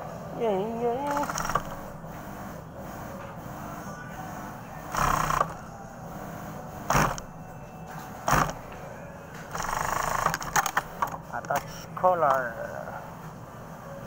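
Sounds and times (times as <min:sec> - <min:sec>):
steady background hum: 0:00.0 - 0:14.0
sewing machine stitching: 0:01.0 - 0:02.4, 0:04.9 - 0:05.6, 0:06.9 - 0:07.3, 0:08.2 - 0:08.6, 0:09.5 - 0:10.8.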